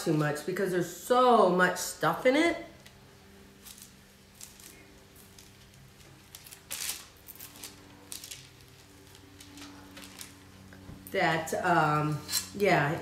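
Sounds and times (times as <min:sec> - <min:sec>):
faint steady hum: 0:00.0 - 0:13.0
parchment paper crinkling: 0:03.6 - 0:11.0.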